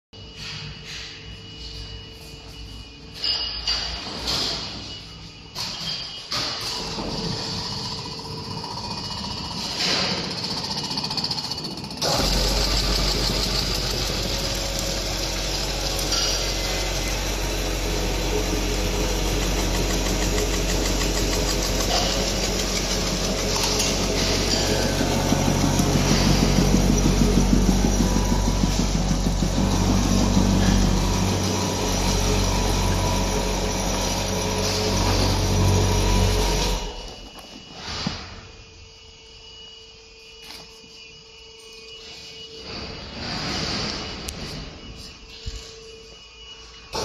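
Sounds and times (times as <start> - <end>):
packing machine humming: 3.9 - 47.0.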